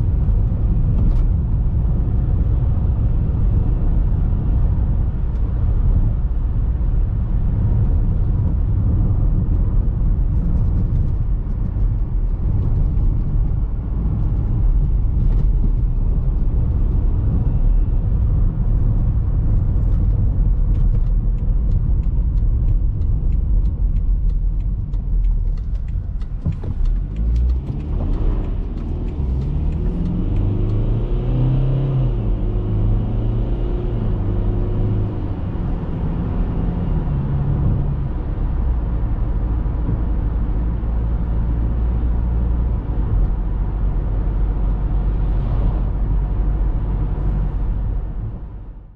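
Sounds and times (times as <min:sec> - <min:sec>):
in-cabin road rumble: 0:00.0 - 0:48.9
suspension ticks and knocks: 0:19.4 - 0:31.0.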